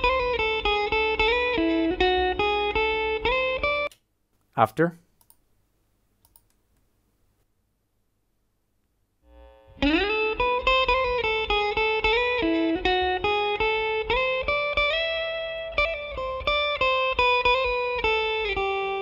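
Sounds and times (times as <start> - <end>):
electric guitar plucked notes: 0.0 - 3.9, 9.3 - 19.0.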